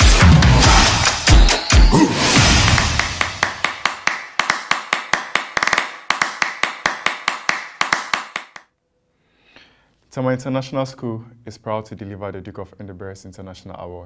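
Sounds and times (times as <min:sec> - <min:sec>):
loud percussion hit: 0:00.0 - 0:04.0.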